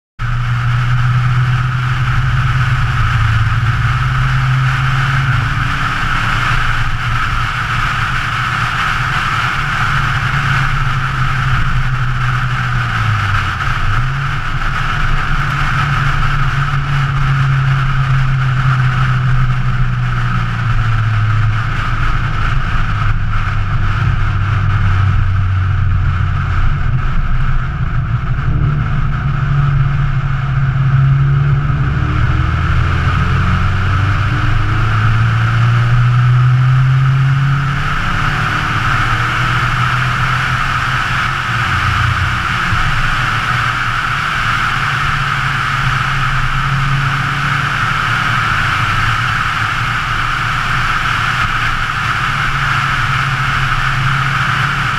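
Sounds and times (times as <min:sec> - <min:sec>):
car engine at speed: 0:00.2 - 0:54.9
wind and road noise: 0:00.2 - 0:54.9.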